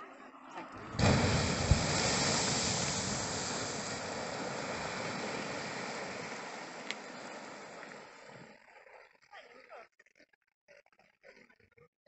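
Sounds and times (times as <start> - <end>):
geyser erupting water and steam: 0.8 - 8.6.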